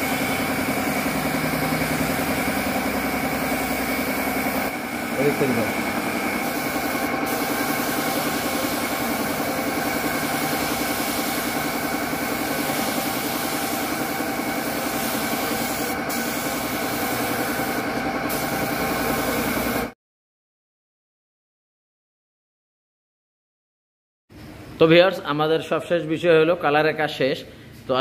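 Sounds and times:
paint spray hissing: 0.0 - 19.9
air compressor running: 0.0 - 20.0.

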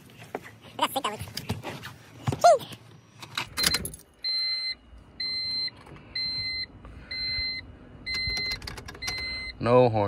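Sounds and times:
car warning chime beeping: 3.6 - 9.8.

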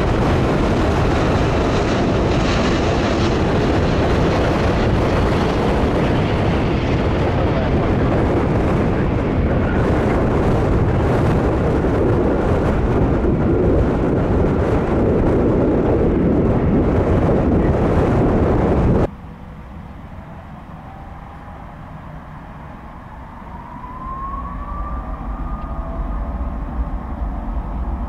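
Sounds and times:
jet engines rumbling: 0.0 - 28.0
faint rising whine: 19.0 - 28.0.

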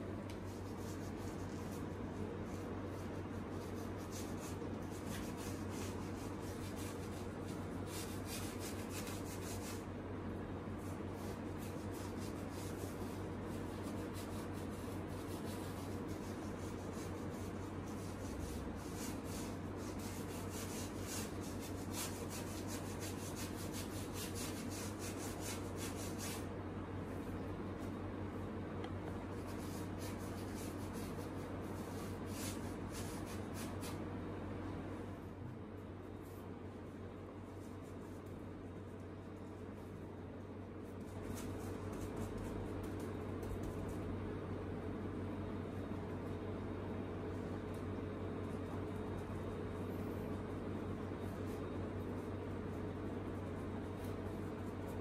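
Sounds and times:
paintbrush scratching on canvas: 0.3 - 10.0, 10.7 - 26.6, 29.2 - 34.1, 36.1 - 44.2.

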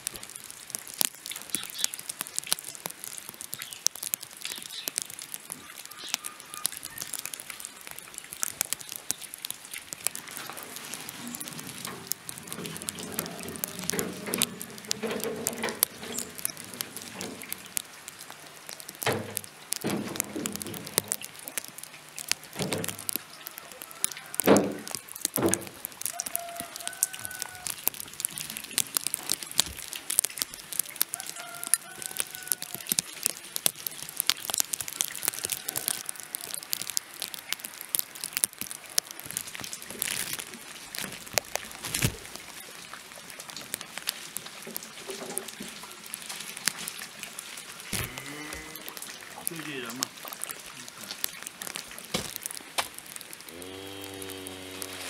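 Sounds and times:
wheelbarrow wheels over leaves: 0.0 - 55.0
vegetables thudding into metal wheelbarrow: 19.1 - 21.0.

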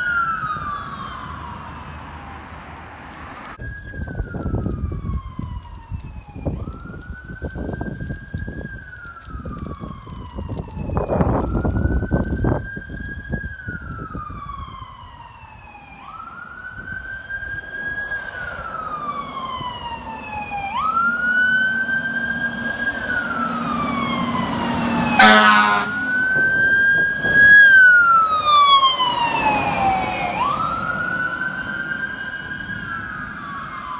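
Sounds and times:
fire truck siren wailing: 0.0 - 33.9
truck engines rumbling: 0.0 - 33.9
horn blast: 25.2 - 26.0.

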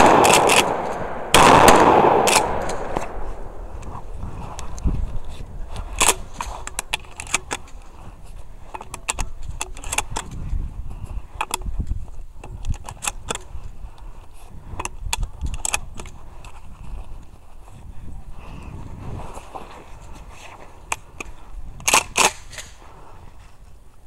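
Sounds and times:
distant gunshots: 0.0 - 4.1.

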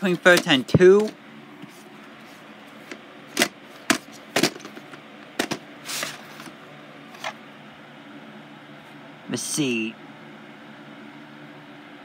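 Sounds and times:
plastic cassettes clacking: 2.9 - 6.5.

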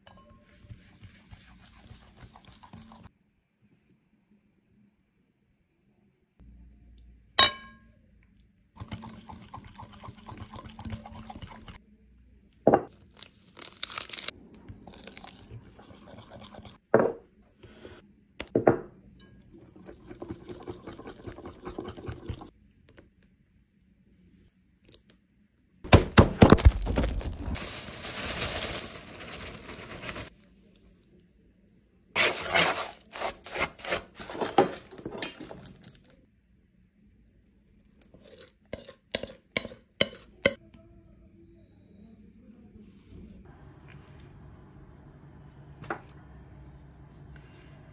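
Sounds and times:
ingredients pouring into bowl: 26.9 - 30.3.

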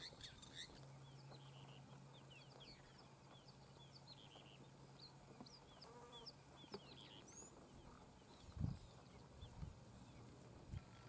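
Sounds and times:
guineafowl high chirping calls: 0.0 - 4.7.

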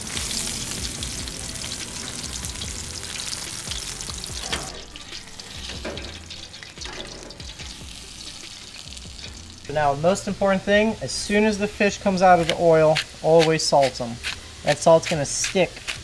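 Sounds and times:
deep-frying sizzle: 0.0 - 16.0
metal tongs clinking on pan: 4.4 - 7.6.

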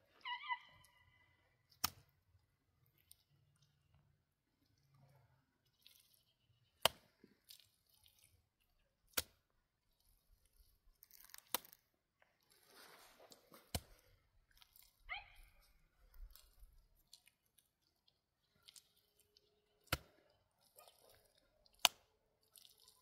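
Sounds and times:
falling chirp-like call: 0.2 - 1.3
mud plaster squishing: 1.6 - 23.0.

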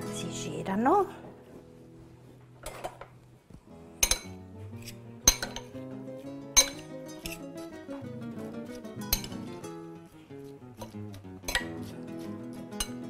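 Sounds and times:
cutlery clinking against glass bowl: 4.0 - 5.8, 6.6 - 7.4, 9.1 - 9.5, 10.8 - 11.8, 12.8 - 13.0.

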